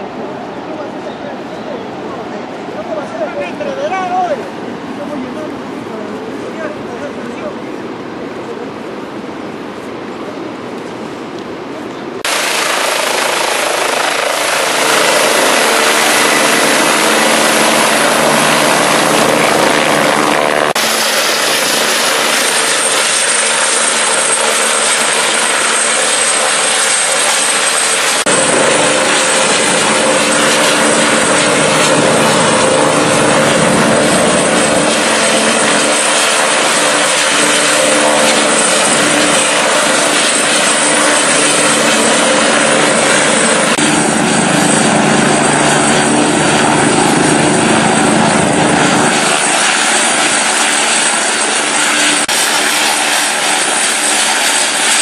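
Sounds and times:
high turbine whine: 0.0s - 55.0s
helicopter rotor thrum: 12.3s - 55.0s.

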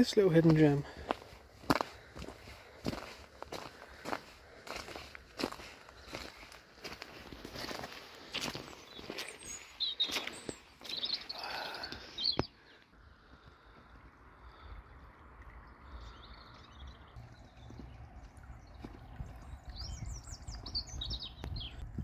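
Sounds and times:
footsteps on a path: 0.0s - 12.5s, 17.6s - 19.5s
small birds chirping faintly: 0.0s - 21.9s.

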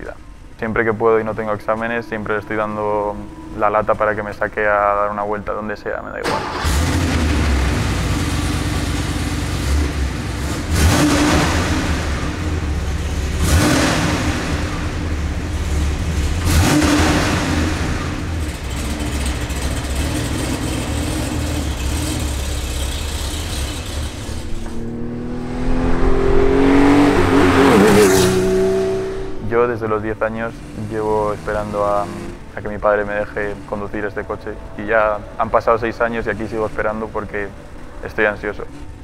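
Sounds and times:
engine revving: 6.2s - 35.4s
car engine idling: 6.3s - 39.0s
engine accelerating: 6.3s - 39.0s.

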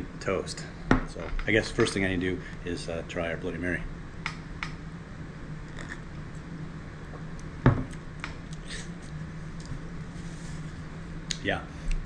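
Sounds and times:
low steady hum: 0.0s - 12.0s
person sipping a drink: 5.7s - 6.1s.

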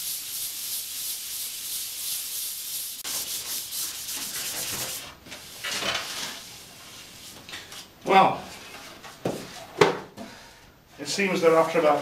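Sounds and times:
sandpaper rasping on wood: 0.0s - 5.1s.

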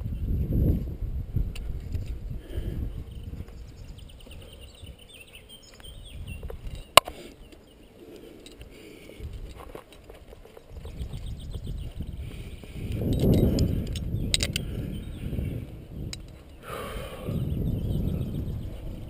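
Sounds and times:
scuffs and rustles on rock: 5.7s - 14.2s.

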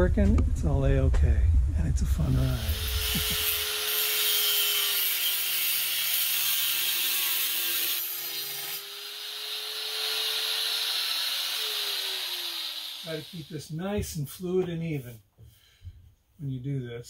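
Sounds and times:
angle grinder grinding steel: 2.4s - 13.6s.

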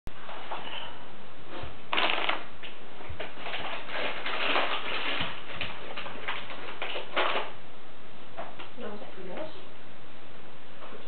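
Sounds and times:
rustling handling noise: 1.5s - 7.6s.

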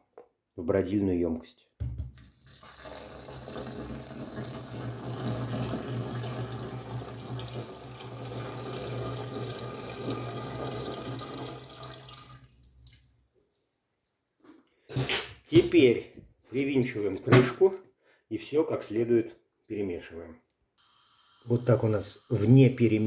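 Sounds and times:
liquid splashing pour: 2.1s - 13.2s.

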